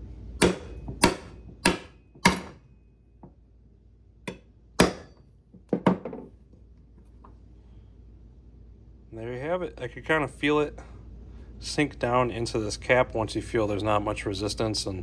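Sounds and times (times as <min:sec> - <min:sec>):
hammer tapping steel rod: 0:04.3 - 0:05.2.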